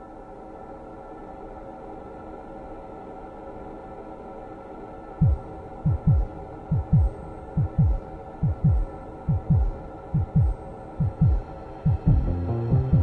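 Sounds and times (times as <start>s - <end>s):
steady hum: 4.5s - 13.0s
heartbeat thumps: 5.2s - 13.0s.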